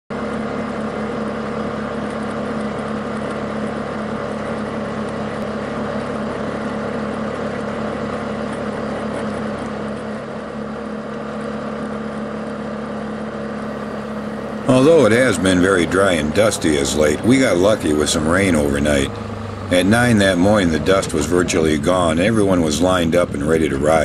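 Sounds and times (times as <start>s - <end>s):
vehicle engine running: 0.1s - 24.0s.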